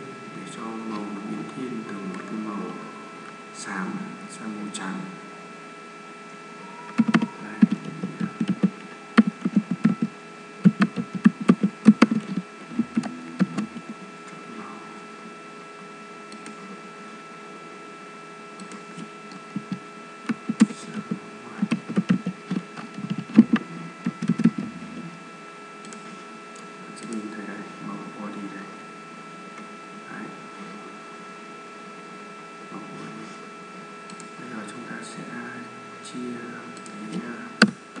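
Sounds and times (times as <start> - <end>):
steady background hum: 0.0 - 38.0
keyboard typing clicks: 6.9 - 13.9, 16.3 - 16.6, 18.6 - 24.6, 25.8 - 27.3, 34.1 - 34.3, 36.8 - 37.0.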